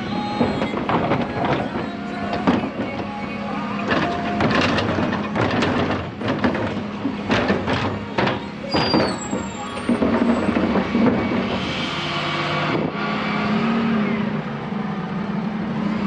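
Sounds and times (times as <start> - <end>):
bin banging on lift: 0.0 - 12.1.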